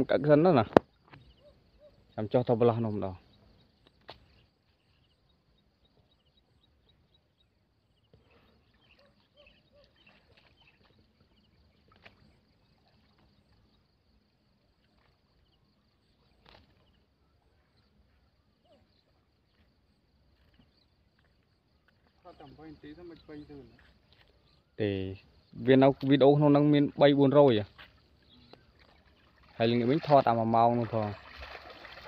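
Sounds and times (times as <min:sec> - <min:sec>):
water sloshing: 0:08.5 - 0:13.8, 0:25.8 - 0:32.0.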